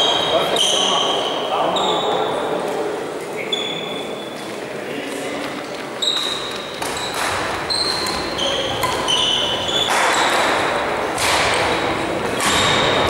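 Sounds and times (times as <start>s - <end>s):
sneakers squeaking on floor: 0.0s - 2.7s, 3.3s - 13.0s
racket hitting shuttlecock: 6.1s - 13.0s.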